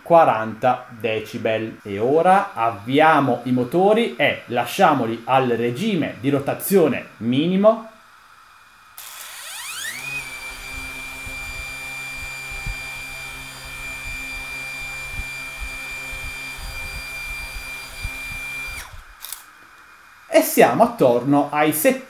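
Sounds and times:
drone motors whining: 9.0 - 19.5.

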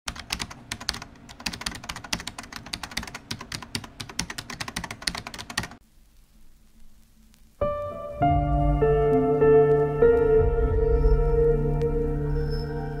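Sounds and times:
rapid keyboard typing: 0.1 - 5.8.

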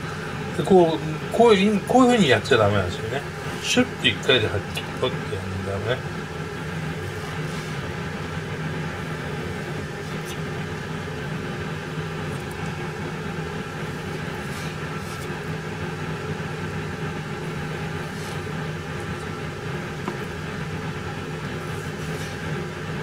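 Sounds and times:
steady machine hum: 0.0 - 23.0
knife swishing through fish: 13.9 - 15.5.

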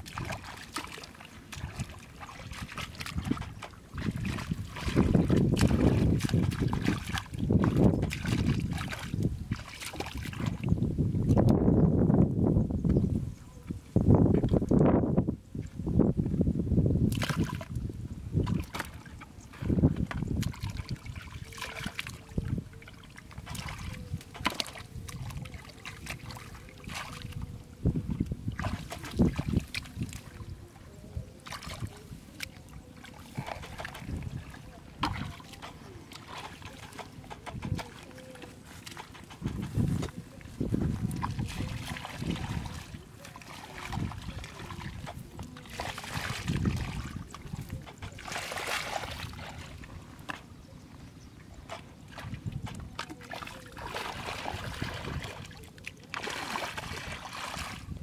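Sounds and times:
hands squelching in mud: 0.0 - 10.8, 18.5 - 27.5, 31.3 - 50.4, 51.6 - 58.0
footsteps splashing in muddy water: 0.0 - 11.7, 17.0 - 58.0.

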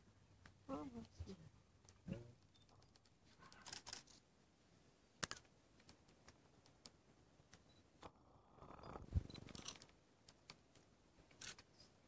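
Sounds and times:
faint clicks and ticks: 1.8 - 4.2, 5.2 - 12.0.

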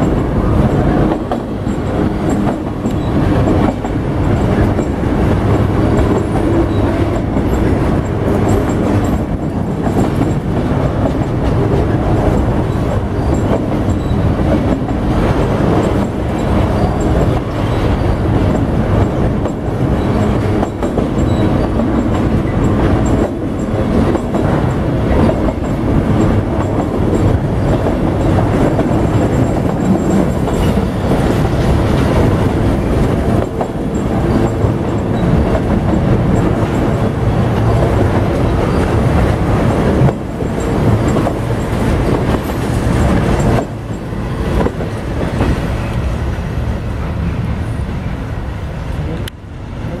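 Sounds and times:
freight train wheels rumbling: 0.0 - 50.0.

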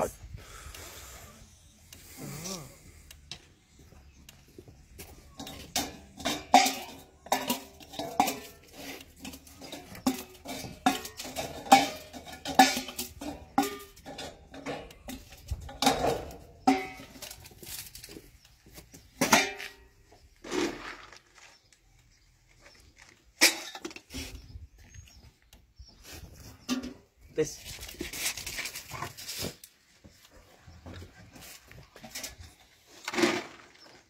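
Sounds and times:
metal dog bowls clanking: 5.2 - 17.4, 19.2 - 19.9.

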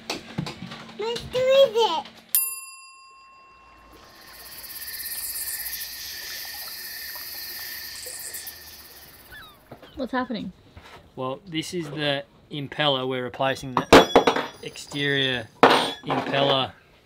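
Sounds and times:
bell-like ding: 2.4 - 5.7, 13.8 - 14.8
insects chirping: 3.7 - 10.0
frogs calling: 3.9 - 10.0.

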